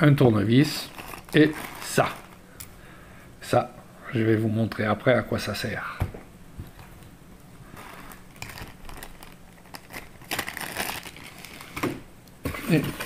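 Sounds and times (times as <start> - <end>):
plastic bag crinkling: 0.6 - 2.6, 7.6 - 12.0.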